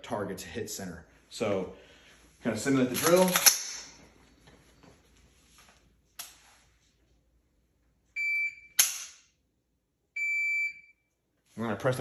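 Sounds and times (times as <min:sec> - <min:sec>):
shot timer beeps: 0:10.2 - 0:11.0.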